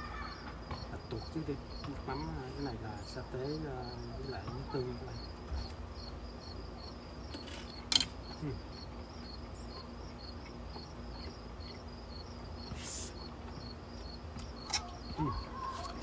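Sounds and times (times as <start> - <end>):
crickets chirping: 0.0 - 16.0
faint low hum: 0.0 - 16.0
short hiss: 12.7 - 13.2.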